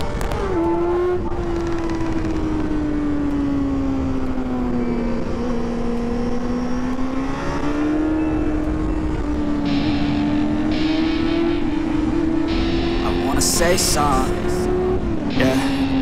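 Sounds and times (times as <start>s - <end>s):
motorcycle engine running: 0.0s - 13.3s.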